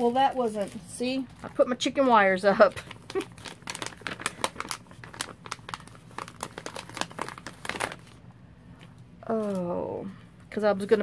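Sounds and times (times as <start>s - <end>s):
plastic sheet crinkling: 0.0s - 8.2s.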